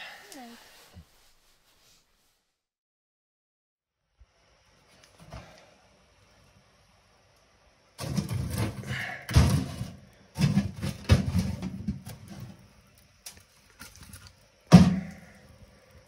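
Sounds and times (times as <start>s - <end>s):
logs clattering in steel stove: 8.0s - 15.6s.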